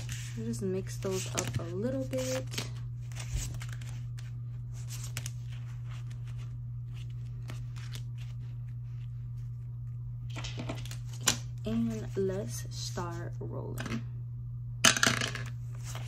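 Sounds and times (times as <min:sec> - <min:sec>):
plastic envelopes rustling and crinkling: 0:00.0 - 0:12.4, 0:15.6 - 0:16.0
steady low hum: 0:00.0 - 0:16.0.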